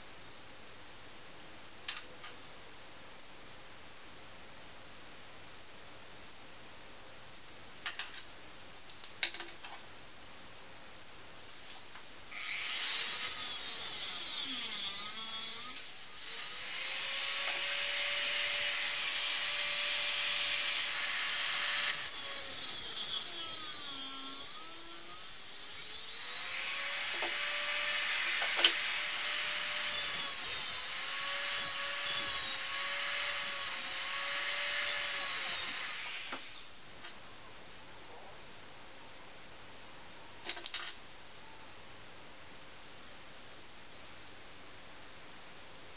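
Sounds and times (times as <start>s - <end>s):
rotary tool cutting metal: 12.3s - 36.7s.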